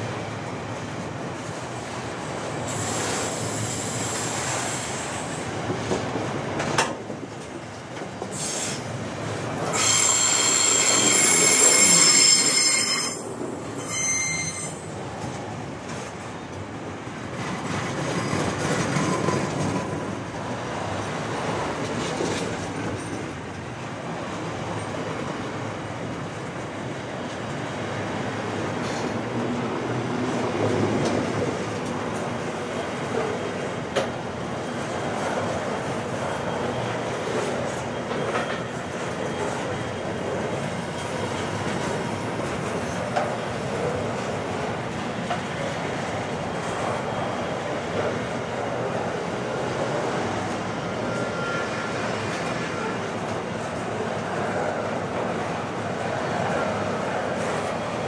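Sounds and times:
freight train wheels rumbling on rail: 0.0 - 58.0.

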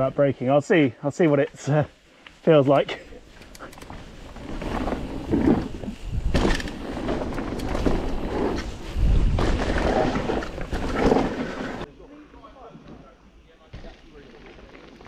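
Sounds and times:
tyres on dirt: 2.2 - 11.9
bike rattling: 2.5 - 11.9
wind rushing on microphone: 5.1 - 11.0.

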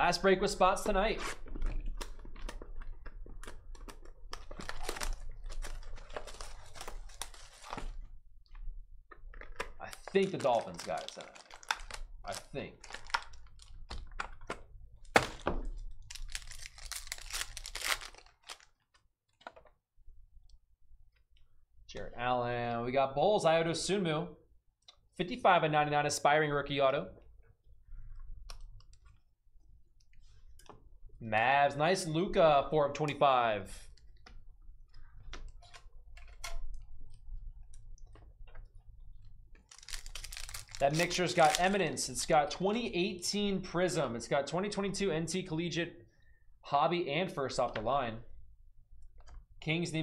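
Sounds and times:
foil wrapper tearing and crinkling: 3.4 - 7.9, 9.9 - 14.1, 16.0 - 19.0, 39.6 - 41.8.

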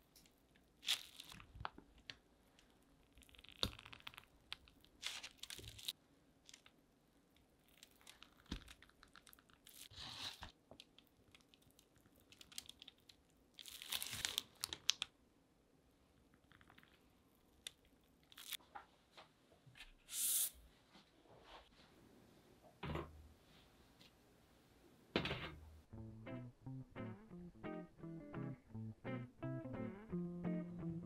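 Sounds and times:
dough squishing: 0.0 - 15.0
plastic piping bag crinkling: 0.6 - 15.1, 16.4 - 18.6.

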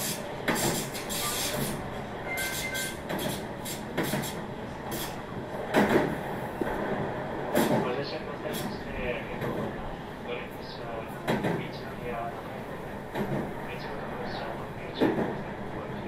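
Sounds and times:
train wheels clacking: 0.0 - 7.9
train wheels rumbling on track: 0.0 - 16.0.

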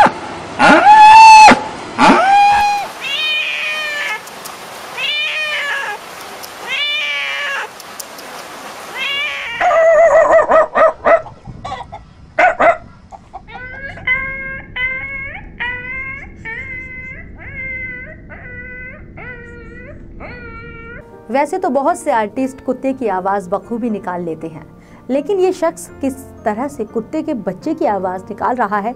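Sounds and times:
cat meowing: 2.2 - 4.3, 5.0 - 7.8, 8.9 - 10.0, 13.6 - 21.0.

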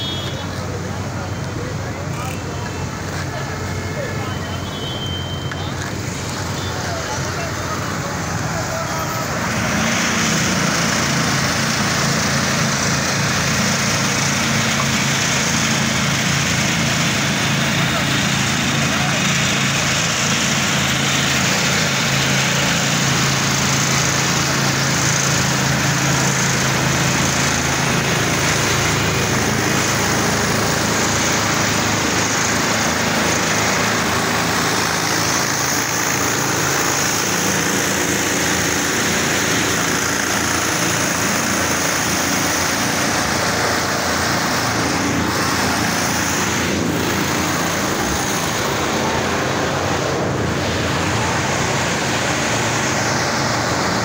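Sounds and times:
diesel engine drone: 0.0 - 54.0.

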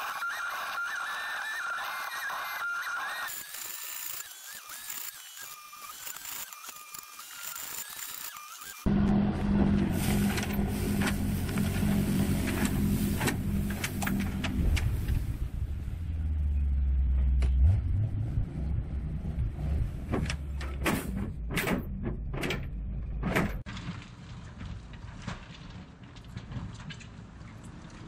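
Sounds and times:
truck engine running: 8.9 - 23.7.

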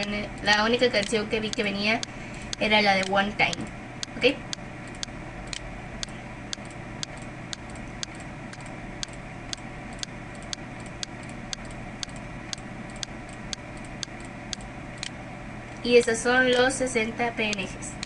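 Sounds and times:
faint hiss and hum: 0.0 - 18.0.

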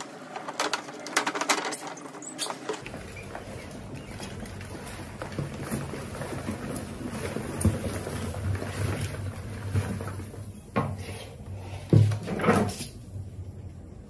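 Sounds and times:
rats scrabbling in plastic bucket: 0.0 - 11.1.

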